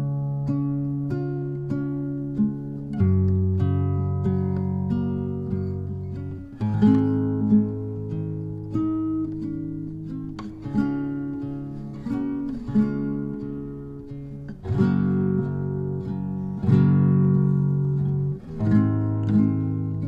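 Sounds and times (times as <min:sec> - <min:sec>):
acoustic guitar chords: 0:00.0 - 0:20.0.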